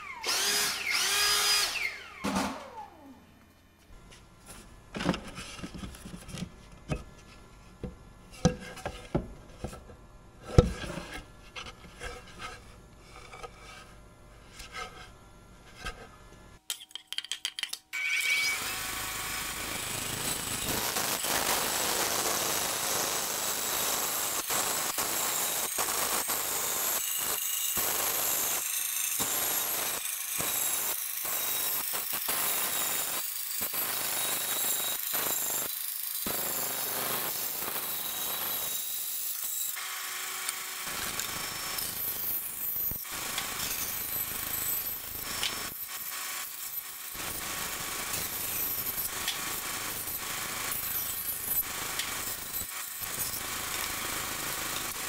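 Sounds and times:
bandsaw cutting wood: 0:00.0 - 0:03.1, 0:18.0 - 0:55.0.

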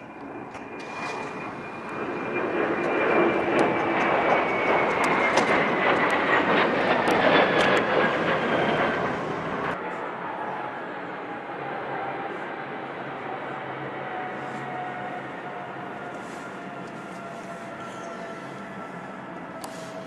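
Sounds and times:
jet airliner passing overhead: 0:00.0 - 0:20.0.

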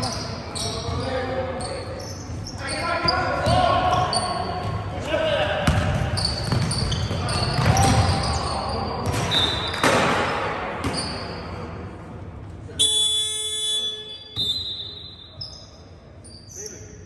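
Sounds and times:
shoe squeaks on court: 0:00.0 - 0:04.4, 0:06.0 - 0:11.5, 0:13.9 - 0:17.0
ball bouncing on hall floor: 0:05.6 - 0:11.2.

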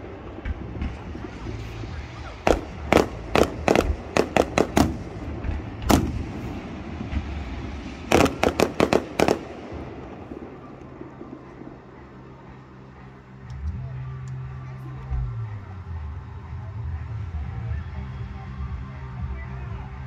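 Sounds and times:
fireworks bangs: 0:00.0 - 0:12.9.

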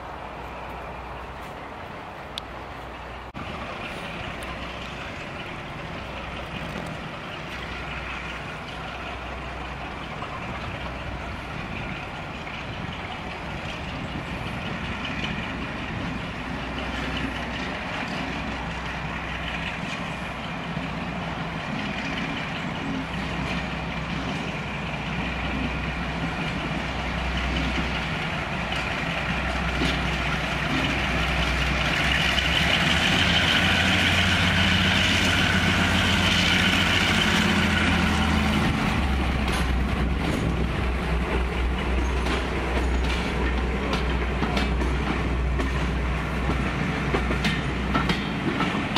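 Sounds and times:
diesel locomotive engine: 0:00.0 - 0:48.9
train coaches rolling past: 0:00.0 - 0:48.9.

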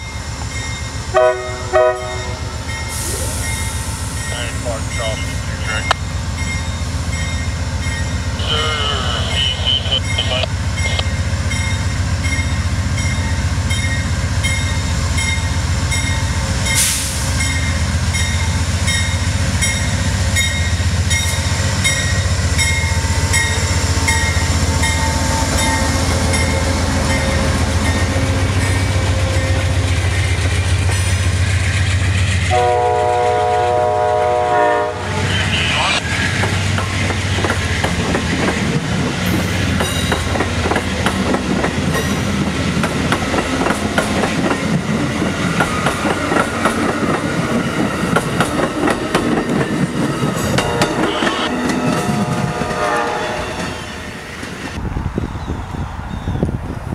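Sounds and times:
locomotive bell ringing: 0:00.0 - 0:29.7, 0:49.4 - 0:53.8
diesel locomotive engine drone: 0:00.0 - 0:56.9
train wheels on rails: 0:00.0 - 0:56.9
train horn chord: 0:01.1 - 0:02.5, 0:32.5 - 0:35.3, 0:50.4 - 0:54.3.

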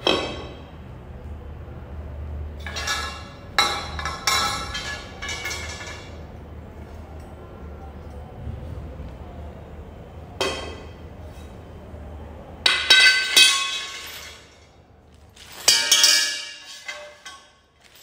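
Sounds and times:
metal tubes clanging on tile: 0:02.6 - 0:06.2, 0:12.7 - 0:14.6, 0:15.4 - 0:18.0.

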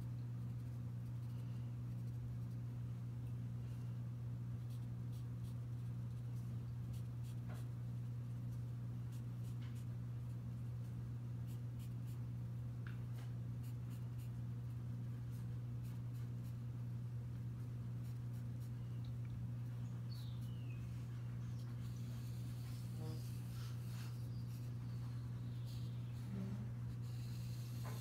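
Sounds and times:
steady low hum: 0:00.0 - 0:28.0
pencil scratching on paper: 0:21.6 - 0:28.0.

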